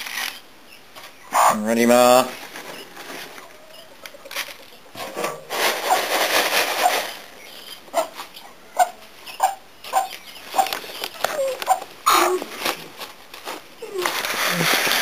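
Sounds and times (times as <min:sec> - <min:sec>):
hen clucking: 0:01.1 - 0:01.8, 0:02.7 - 0:06.0, 0:06.8 - 0:12.5
straw rustling and scraping: 0:02.2 - 0:15.0.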